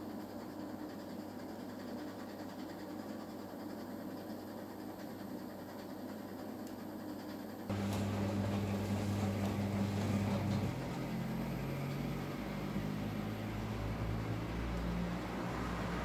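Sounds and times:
washing machine motor hum: 0.0s - 16.0s
drum tumbling wet towels: 7.7s - 12.1s.

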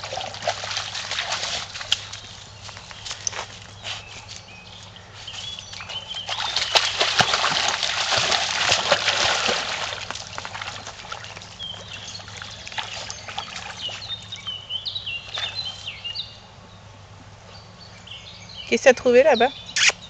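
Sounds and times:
dog wading water splashing: 0.0s - 15.8s
stream trickling: 0.0s - 16.1s.

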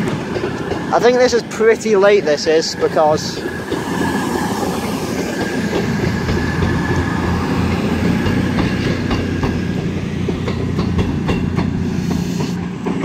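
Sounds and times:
train rumbling past: 0.0s - 13.0s
wheels clicking over rail joints: 0.0s - 13.0s.

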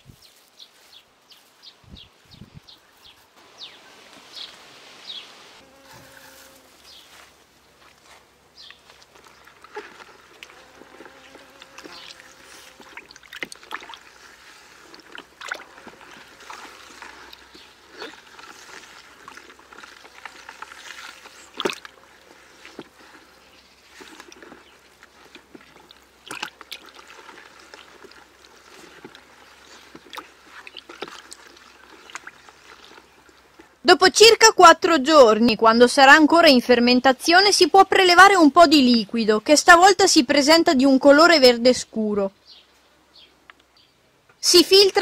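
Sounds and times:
liquid sloshing in bucket: 8.8s - 33.8s.

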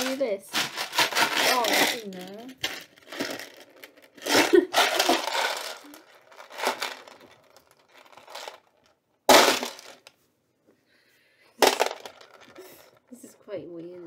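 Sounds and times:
plastic tub rattling and scraping: 0.0s - 8.7s, 9.3s - 10.1s, 11.6s - 14.0s.

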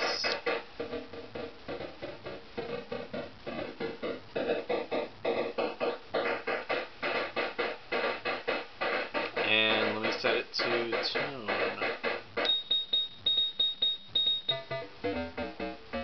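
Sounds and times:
digital noise percussion hits: 0.0s - 16.0s.

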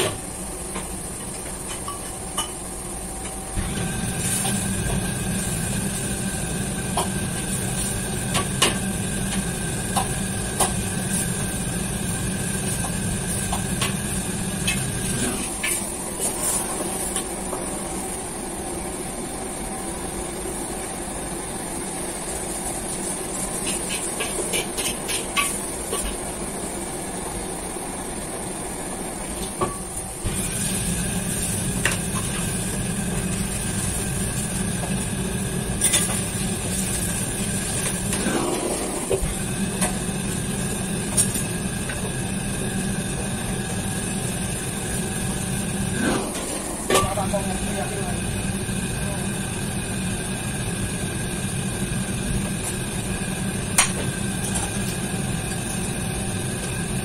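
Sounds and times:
extractor hood and burners droning: 25.9s - 57.0s.

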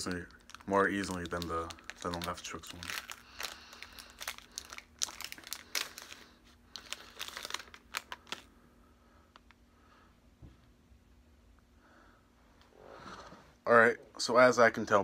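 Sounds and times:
candy wrapper crinkling: 0.0s - 8.5s.

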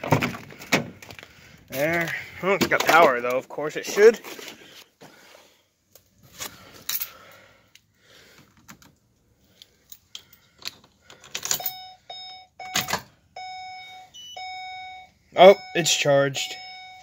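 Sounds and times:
keys jangling: 9.8s - 11.8s
dashboard warning chime: 11.6s - 17.0s.

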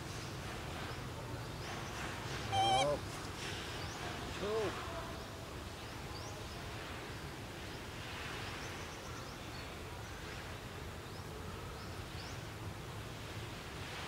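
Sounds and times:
rising bird chirps: 2.5s - 3.0s.

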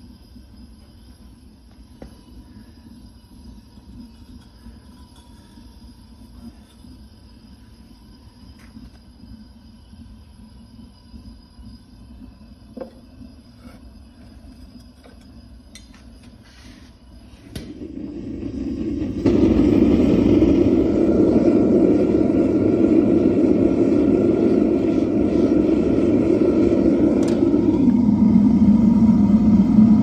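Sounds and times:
gas burner rushing: 11.9s - 30.0s
gas burner ignition click: 27.2s - 27.9s.

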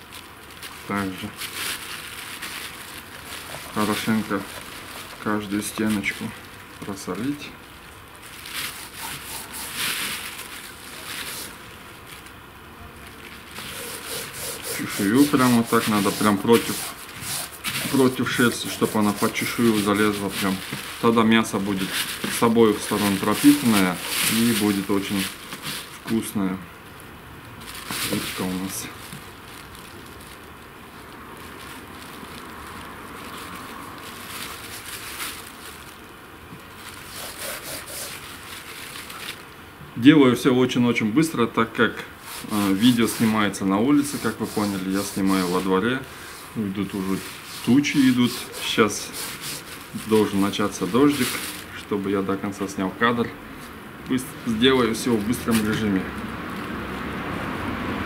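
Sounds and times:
plastic bag rustling: 0.0s - 57.8s
hands scraping salt on fish: 8.6s - 10.3s, 13.6s - 25.8s, 37.0s - 38.5s, 42.2s - 51.6s.

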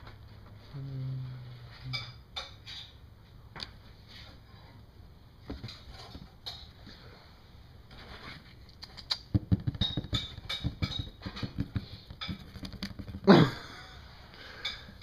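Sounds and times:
tapping on cardboard box: 9.3s - 13.4s.

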